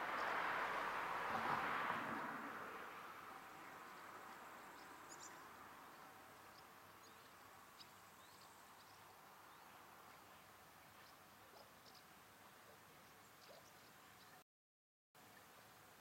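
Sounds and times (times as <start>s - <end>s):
faint bird chirps: 6.5s - 14.4s.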